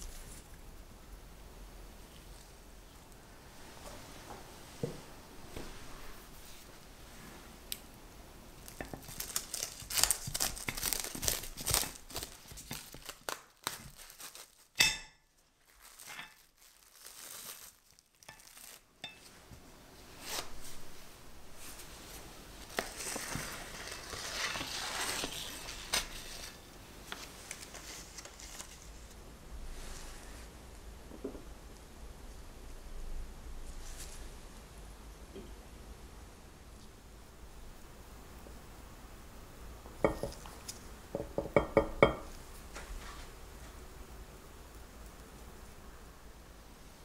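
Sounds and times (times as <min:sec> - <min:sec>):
plastic film crinkling: 0:08.6 - 0:19.3, 0:21.6 - 0:29.2.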